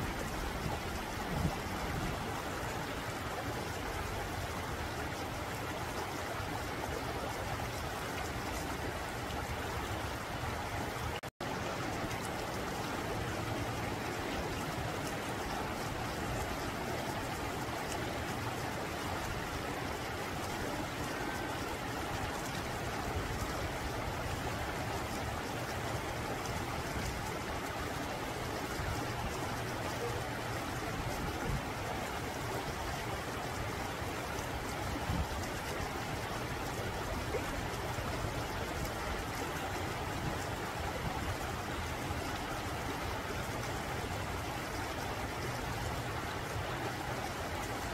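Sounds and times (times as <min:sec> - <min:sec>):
stream flowing over rocks: 0:00.0 - 0:47.9.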